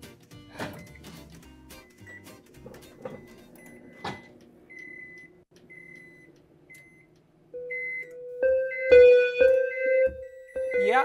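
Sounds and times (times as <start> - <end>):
microwave ovens beeping: 0.5 - 11.0
electronic keyboard notes: 7.6 - 11.0.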